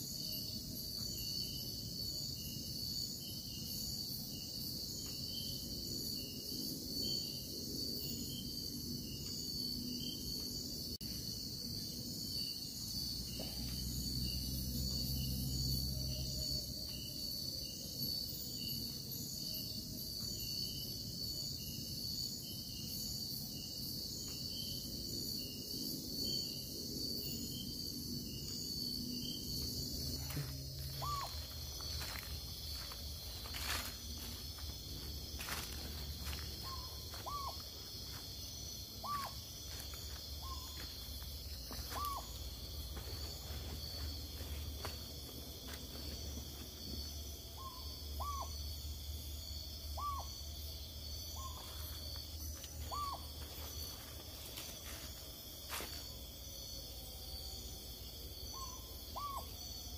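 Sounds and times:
crickets and insects chorus: 0:00.0 - 0:59.9
pulsing insect trill: 0:00.0 - 0:59.9
owl calling: 0:30.9 - 0:31.5, 0:36.6 - 0:37.6, 0:39.0 - 0:39.4, 0:41.9 - 0:42.3, 0:47.6 - 0:48.5, 0:50.0 - 0:50.3, 0:52.9 - 0:53.3, 0:58.6 - 0:59.5.

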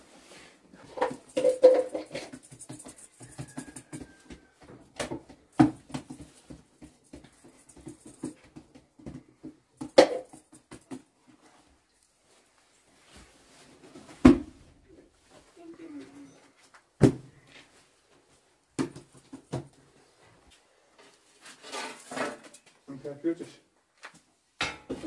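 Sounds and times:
dough patting and thudding: 0:00.8 - 0:11.4, 0:18.7 - 0:19.8.

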